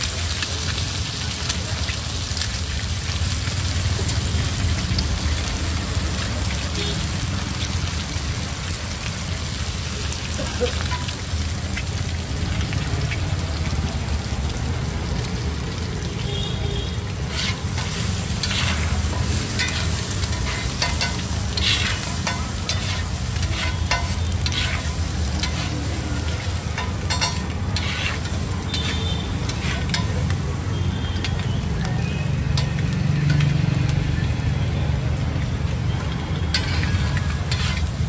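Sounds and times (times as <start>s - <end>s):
eggs sizzling in a pan: 0.0s - 38.0s
metal spatula scraping pan: 17.2s - 30.3s, 36.5s - 38.0s.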